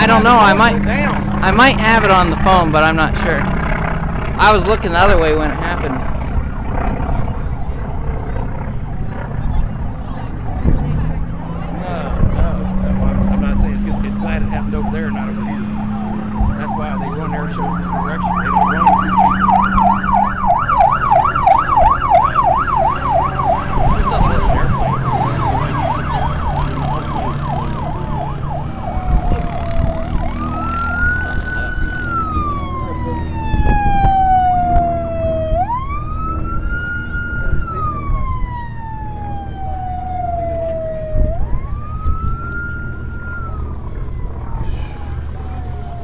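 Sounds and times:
emergency siren yelp and wail: 0.0 - 46.0
low engine rumble: 0.0 - 46.0.

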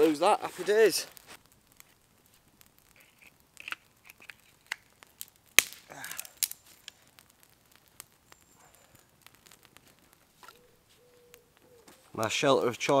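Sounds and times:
fire pops and crack: 0.0 - 13.0
kindling fire crackling: 0.0 - 13.0.

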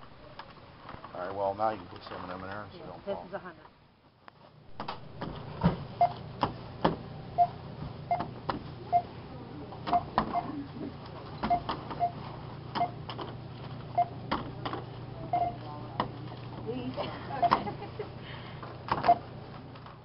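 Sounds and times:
steady low hum: 2.7 - 20.0
barcode scanner beeps: 11.4 - 12.2, 12.8 - 13.0, 13.9 - 14.2, 15.3 - 15.6, 17.4 - 17.6, 19.0 - 19.3.

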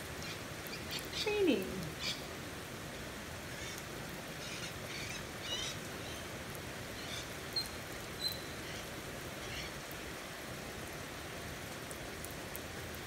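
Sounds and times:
rain on a wooden deck: 0.0 - 13.0.

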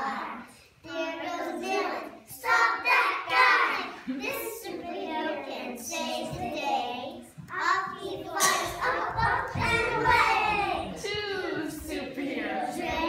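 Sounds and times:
children singing: 0.0 - 13.0.

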